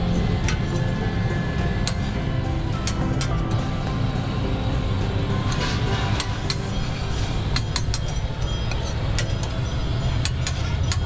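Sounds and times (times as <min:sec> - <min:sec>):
street traffic rumble: 0:00.0 - 0:11.0
utensils clinking on griddle: 0:05.5 - 0:11.0.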